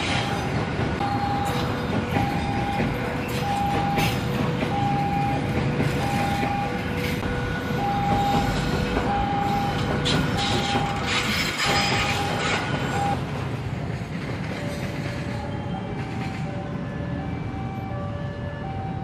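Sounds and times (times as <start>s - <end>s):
train rumbling on rails: 0.0s - 19.0s
two-tone warning alarm chime: 0.2s - 13.2s.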